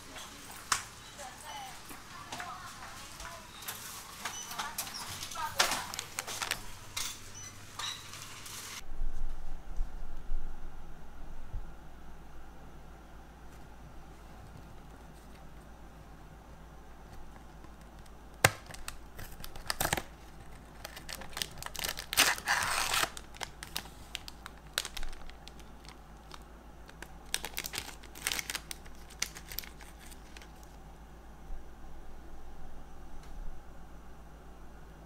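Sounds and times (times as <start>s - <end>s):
packaging crinkling and tearing: 4.6s - 6.9s, 17.3s - 30.8s.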